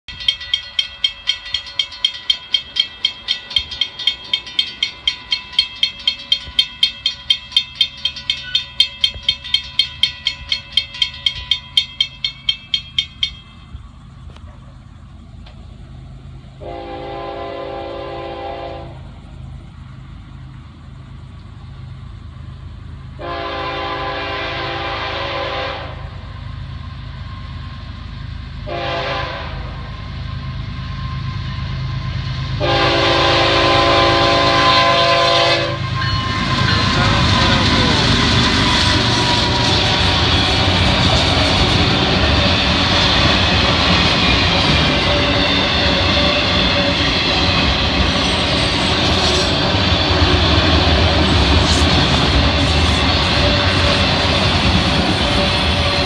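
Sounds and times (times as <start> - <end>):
locomotive rumble: 0.0 - 56.0
railroad crossing bell ringing: 0.1 - 14.3, 23.2 - 56.0
train air horn blasts: 16.6 - 19.0, 23.2 - 26.2, 28.6 - 30.1, 32.6 - 42.4, 52.6 - 56.0.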